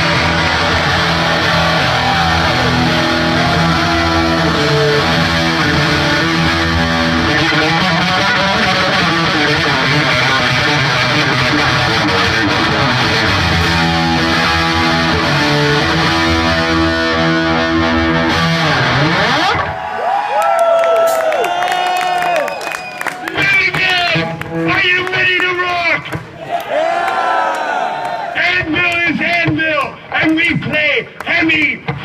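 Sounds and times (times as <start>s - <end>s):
heavy metal band playing: 0.0s - 19.7s
distorted electric guitar riff: 0.0s - 19.8s, 23.3s - 25.2s.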